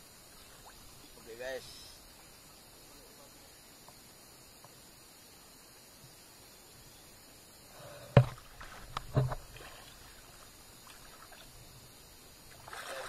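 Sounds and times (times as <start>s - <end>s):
faint water splashing: 0.0s - 7.1s, 7.7s - 13.0s
sharp thuds: 8.1s - 9.5s.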